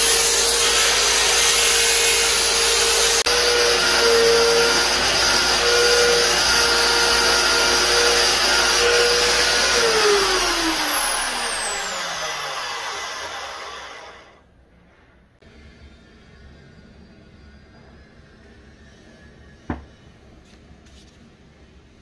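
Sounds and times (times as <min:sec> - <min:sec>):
electric sanding disc motor whine: 0:00.0 - 0:14.3.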